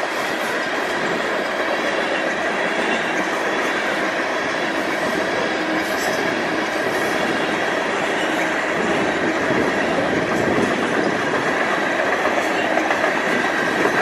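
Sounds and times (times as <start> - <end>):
train wheels rolling on rails: 0.0 - 14.0.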